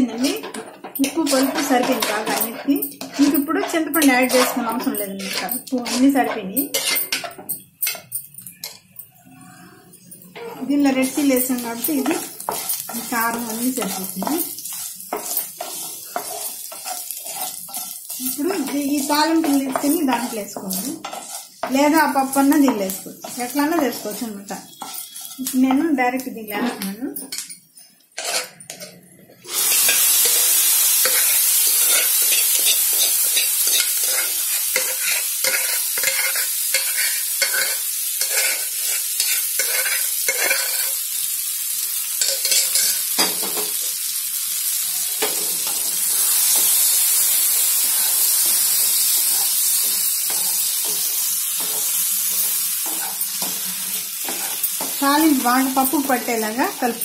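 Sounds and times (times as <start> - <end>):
hot oil sizzling: 0.0 - 8.9, 10.2 - 57.0
wooden spoon scraping a pan: 0.4 - 7.3, 11.8 - 25.6, 28.2 - 28.9, 29.8 - 41.0, 47.9 - 55.2.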